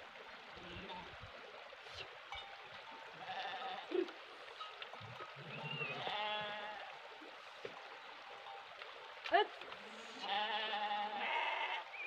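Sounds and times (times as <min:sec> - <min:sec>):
sheep bleating: 0:03.2 - 0:04.0, 0:05.5 - 0:06.9, 0:10.1 - 0:11.9.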